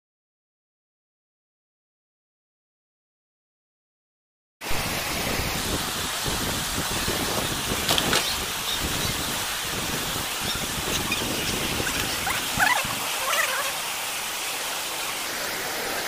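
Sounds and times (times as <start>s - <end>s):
floodwater rushing: 4.6s - 16.0s.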